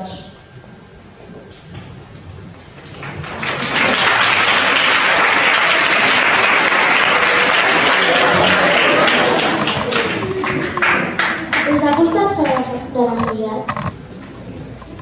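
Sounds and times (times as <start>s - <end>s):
audience applauding: 2.7s - 12.7s.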